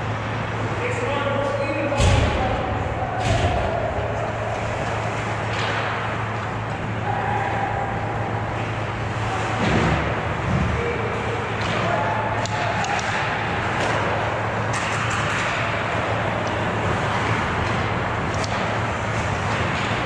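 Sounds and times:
sharp puck clacks: 0:11.6 - 0:16.6, 0:17.2 - 0:18.9.

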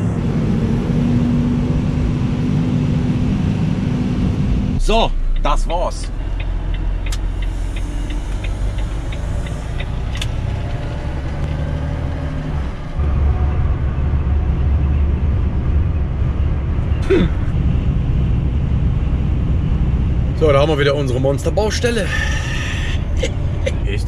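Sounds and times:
truck diesel engine and road noise: 0:00.0 - 0:24.0
turn indicator ticking: 0:05.1 - 0:11.6.

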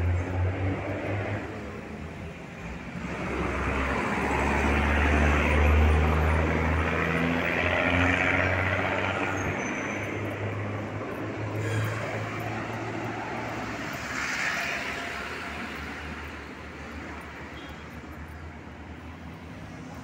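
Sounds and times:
large vehicle engine rumble: 0:00.0 - 0:20.0.

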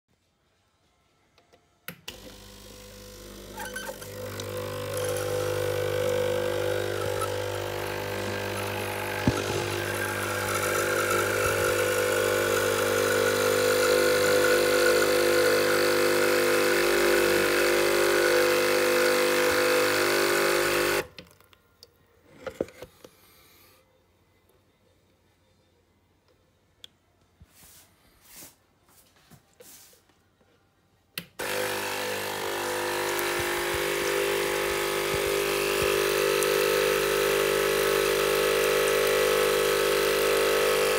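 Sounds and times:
coffee machine pump humming: 0:02.1 - 0:21.1, 0:31.4 - 0:40.9
water pouring into plastic jug: 0:03.9 - 0:18.1, 0:32.4 - 0:40.9.

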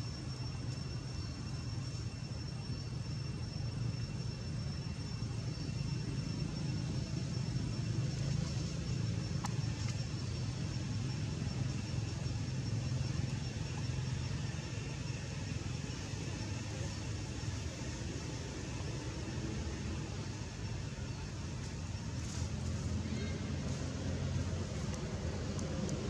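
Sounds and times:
faint high-pitched whine: 0:00.0 - 0:26.0
faint click: 0:09.4 - 0:10.0.

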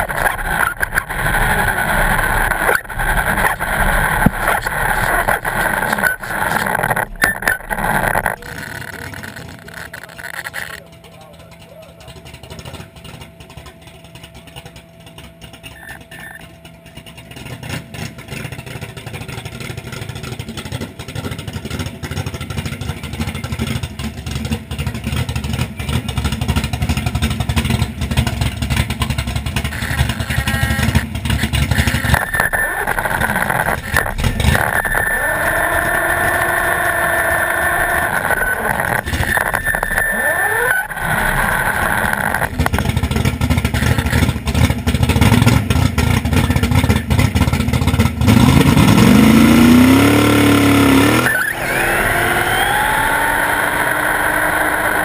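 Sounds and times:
high steady whine: 0:00.0 - 0:18.5, 0:29.1 - 0:45.8, 0:48.3 - 0:55.0
drag car engine rumble: 0:00.0 - 0:55.0.

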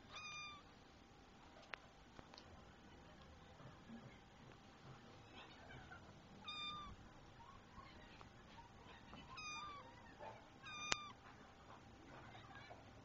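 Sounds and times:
kitten meowing: 0:00.1 - 0:00.7, 0:06.4 - 0:07.0, 0:09.3 - 0:10.0, 0:10.6 - 0:11.2.

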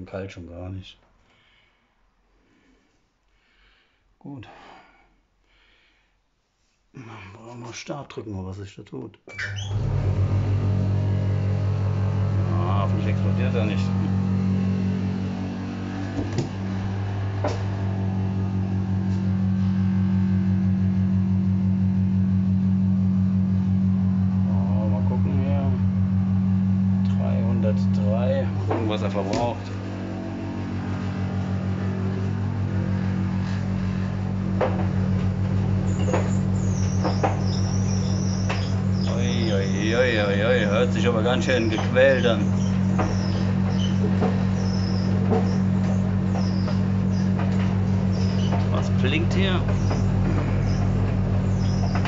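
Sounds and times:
drum turning laundry: 0:09.5 - 0:52.0
thin high whine: 0:09.6 - 0:52.0
tumble dryer humming: 0:09.7 - 0:52.0
short knocks: 0:13.8 - 0:18.0, 0:33.5 - 0:52.0.

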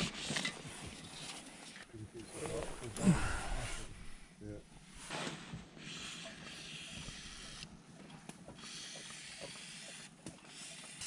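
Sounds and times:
aerosol spray hissing: 0:05.9 - 0:07.6.

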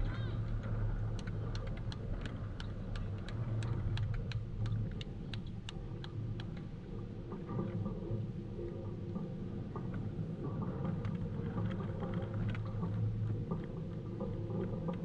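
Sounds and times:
low steady rumble: 0:00.0 - 0:15.0
light regular ticking: 0:00.4 - 0:07.9.

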